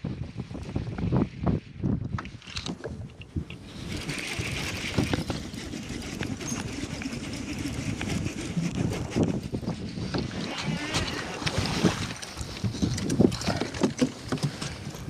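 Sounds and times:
water noise: 0:00.0 - 0:15.0
wind: 0:00.0 - 0:15.0
fishing reel whirring: 0:03.6 - 0:13.4.

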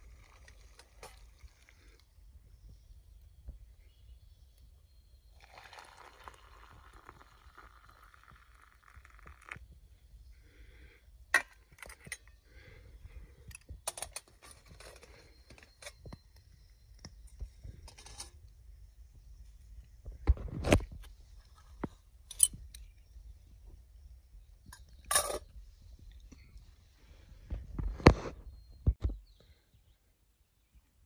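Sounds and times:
camp cookware clinking: 0:11.3 - 0:12.4, 0:13.4 - 0:16.4, 0:17.1 - 0:18.4, 0:22.3 - 0:22.9, 0:24.7 - 0:25.5.

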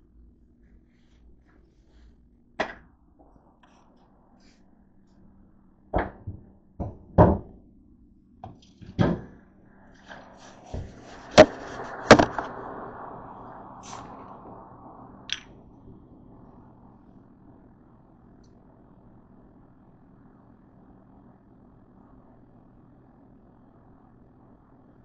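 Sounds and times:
hiss: 0:09.8 - 0:15.2.

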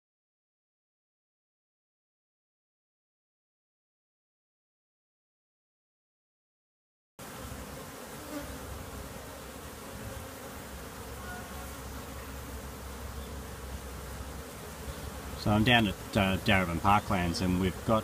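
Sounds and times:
honeybees humming: 0:07.2 - 0:18.0.

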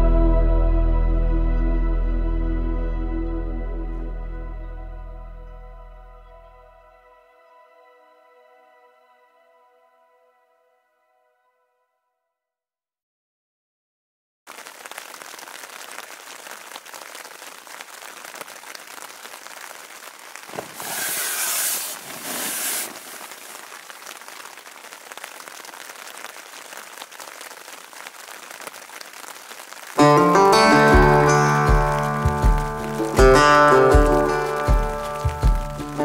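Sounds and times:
rain pattering on tent: 0:14.5 - 0:36.0
loud rustle: 0:20.4 - 0:24.6
acoustic guitar music: 0:30.0 - 0:36.0.

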